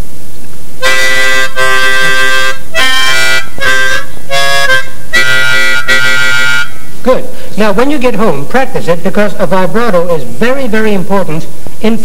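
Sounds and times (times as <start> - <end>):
harmonica chords: 0.8 - 7.5.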